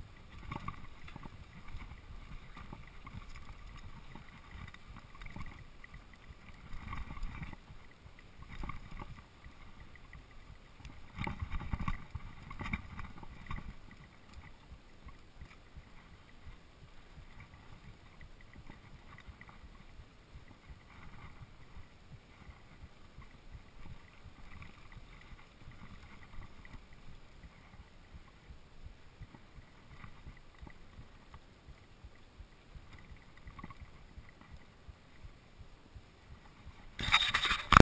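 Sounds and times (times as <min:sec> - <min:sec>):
faint heartbeat: 0:14.5 - 0:37.0.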